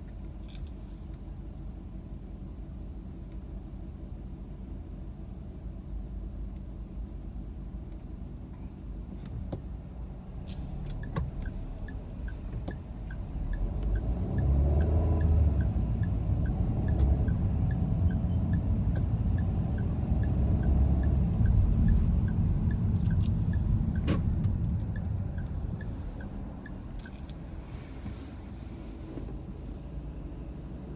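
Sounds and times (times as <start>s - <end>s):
engine and road rumble: 0.0s - 30.9s
turn signal ticking: 9.2s - 30.9s.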